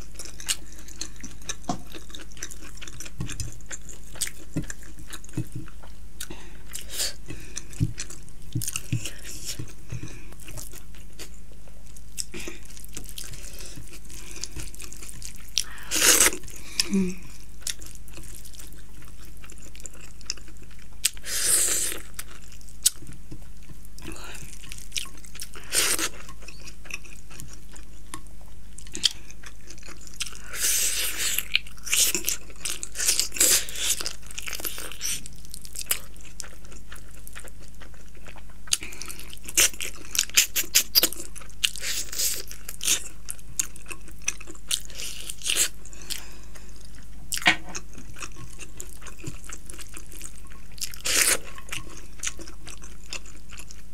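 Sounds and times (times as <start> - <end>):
person chewing food: 0.0 - 53.9.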